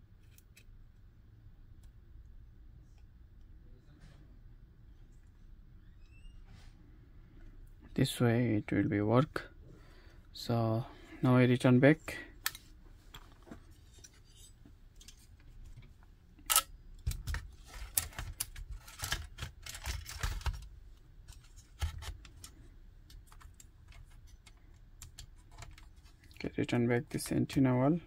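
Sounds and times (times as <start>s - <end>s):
small clicks taps and scrapes: 17.0s - 26.4s.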